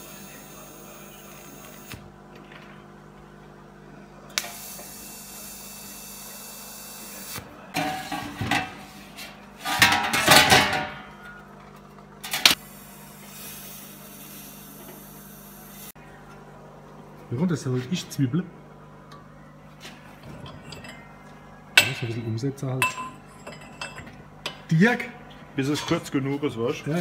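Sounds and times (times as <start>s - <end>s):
metal scraping and clanking: 7.8s - 11.1s
welding arc hissing: 12.5s - 16.0s.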